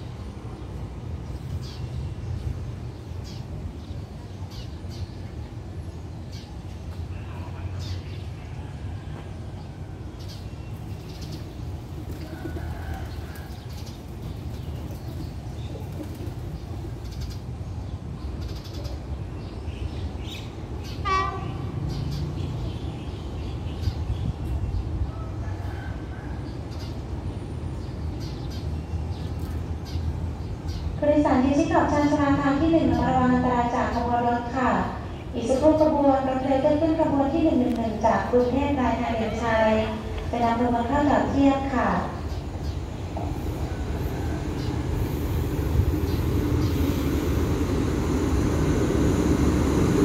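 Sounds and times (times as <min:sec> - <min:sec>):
train low rumble: 0:00.0 - 0:50.0
train horn blast: 0:21.0 - 0:21.6.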